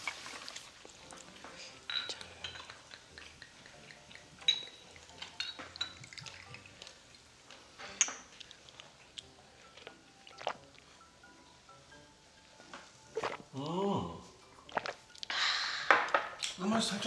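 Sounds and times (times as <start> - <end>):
liquid pouring: 0.0 - 10.9, 13.1 - 15.4
glass bottle and shot glasses clinking: 1.8 - 2.9, 4.4 - 6.3.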